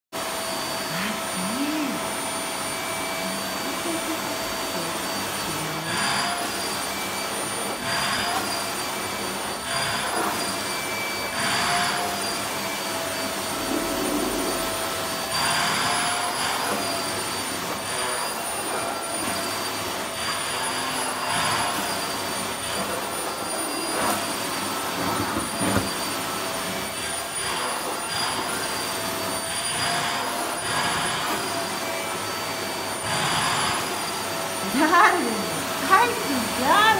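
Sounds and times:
handheld vacuum cleaner whining: 0:00.2 - 0:36.9
vacuum suction hiss on fur: 0:13.4 - 0:19.6.

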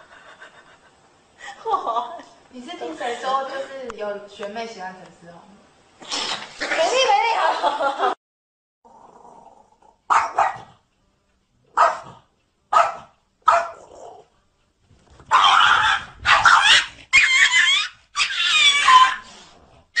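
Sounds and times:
small dog barking: 0:10.1 - 0:10.8, 0:11.7 - 0:14.2, 0:15.3 - 0:17.0.

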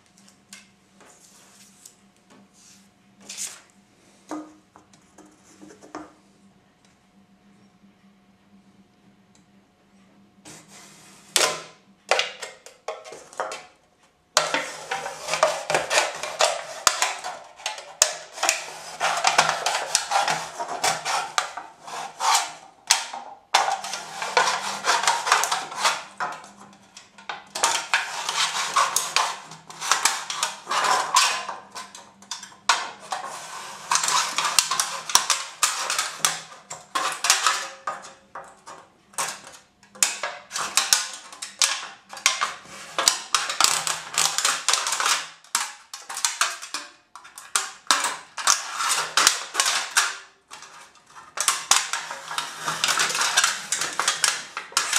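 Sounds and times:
knife scraping aluminium can: 0:14.4 - 0:26.5, 0:27.6 - 0:32.0, 0:32.8 - 0:37.7, 0:48.4 - 0:54.9.

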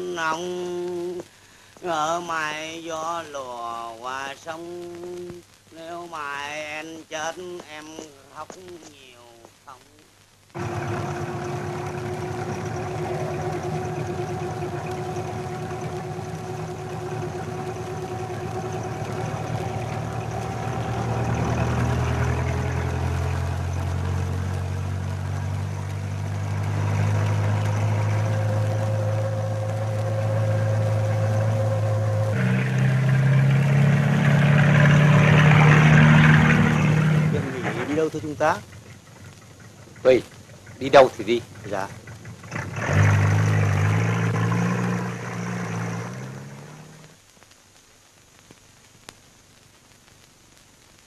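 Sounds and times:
vehicle engine running: 0:10.6 - 0:47.1.

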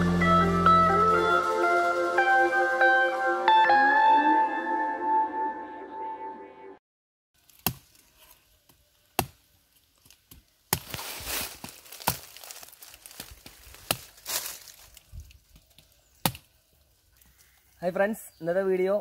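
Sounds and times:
rustling and tearing: 0:07.4 - 0:17.6.

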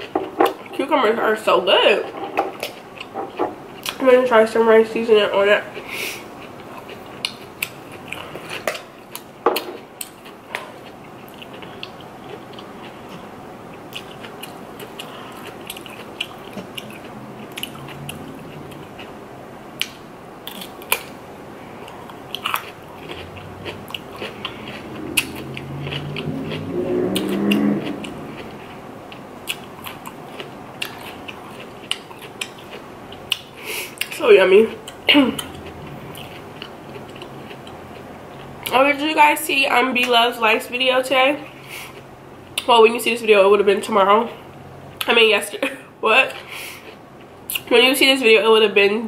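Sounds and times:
crunching and chewing cucumber: 0:05.7 - 0:19.2, 0:19.8 - 0:38.7
drawn-out hum: 0:12.1 - 0:31.8, 0:34.3 - 0:38.6.

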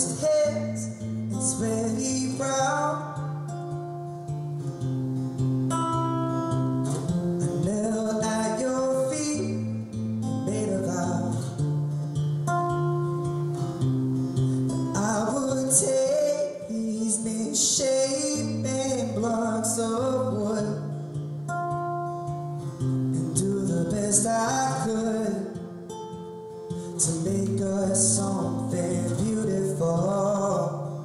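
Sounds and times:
man singing: 0:00.0 - 0:03.7, 0:07.4 - 0:11.7, 0:14.7 - 0:21.2, 0:23.0 - 0:25.7, 0:26.8 - 0:31.0
acoustic guitar: 0:00.0 - 0:31.0.

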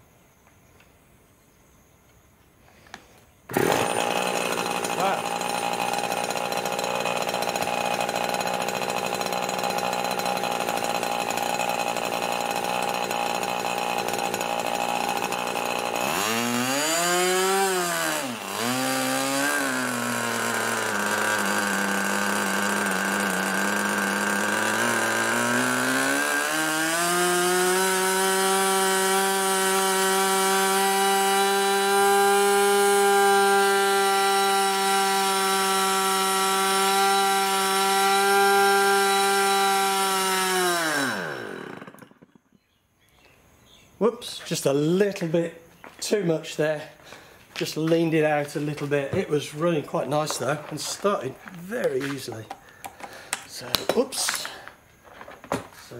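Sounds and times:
model airplane engine running: 0:03.5 - 0:42.3.

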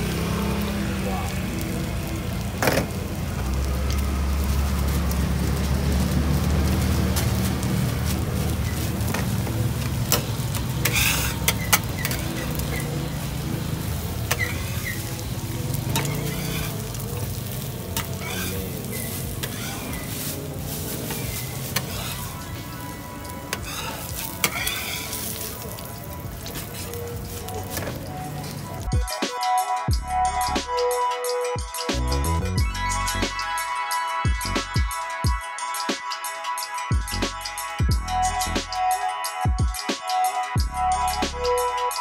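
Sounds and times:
egg and patties sizzling on griddle: 0:00.0 - 0:28.9
metal spatula scraping griddle: 0:08.2 - 0:28.8.

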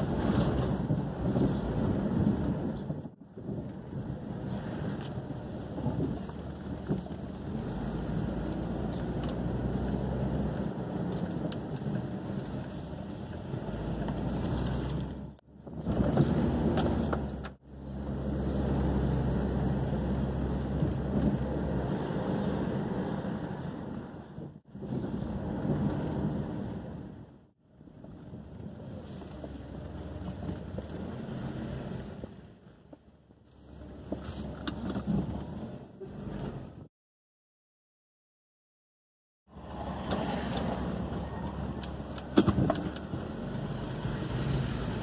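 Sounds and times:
car cabin road and engine rumble: 0:00.0 - 0:36.9, 0:39.5 - 0:45.0.

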